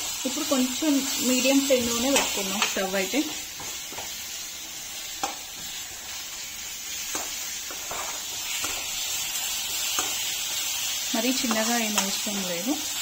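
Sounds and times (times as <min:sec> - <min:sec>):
food sizzling in oil: 0:00.0 - 0:13.0
spoon clicking against pan: 0:09.8 - 0:10.2.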